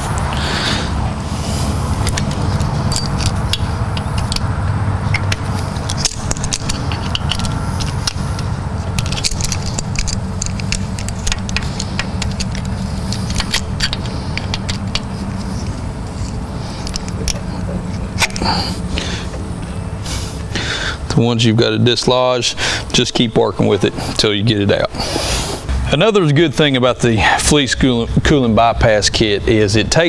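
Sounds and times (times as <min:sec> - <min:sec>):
low hum: 0:00.0 - 0:28.8
pliers clicking and scraping metal: 0:02.0 - 0:19.1.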